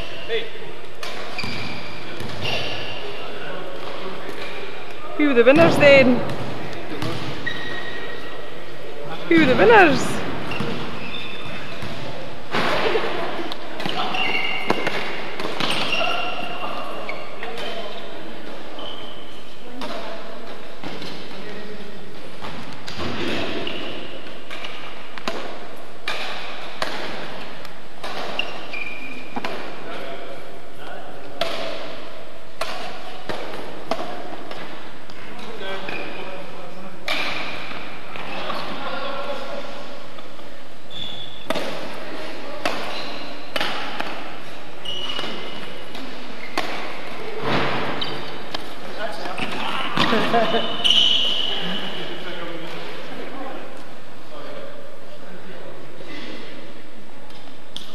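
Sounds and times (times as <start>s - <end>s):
shoes squeaking on floor: 0.0s - 4.6s, 5.2s - 8.5s, 9.3s - 12.2s, 13.6s - 20.1s, 22.4s - 25.0s, 28.0s - 29.7s, 35.2s - 36.3s, 40.9s - 48.5s, 49.1s - 52.2s
rackets hitting a shuttlecock: 9.5s - 16.4s, 22.4s - 29.9s, 31.2s - 36.0s, 37.0s - 38.6s, 41.4s - 50.5s.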